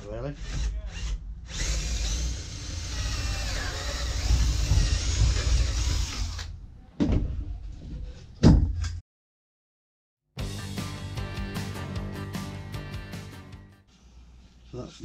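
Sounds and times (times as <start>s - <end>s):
cordless drill boring wood: 0.4s - 6.5s.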